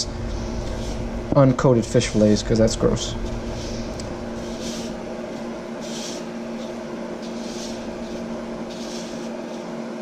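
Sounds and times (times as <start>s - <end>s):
stove vent fan humming: 0.0s - 10.0s
gritty rustle of breading: 1.8s - 9.7s.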